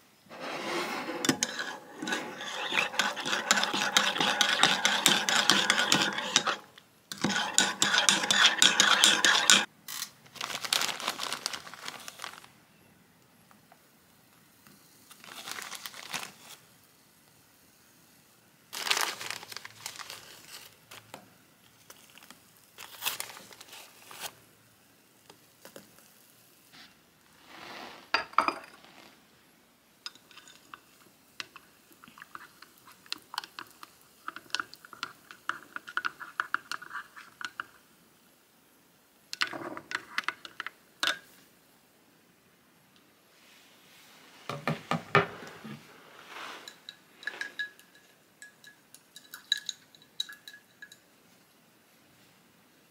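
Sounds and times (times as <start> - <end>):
plastic packaging crinkling: 9.9 - 12.6, 15.1 - 16.6, 18.7 - 21.2, 21.8 - 24.4
spoon tapping a mug: 47.3 - 51.0.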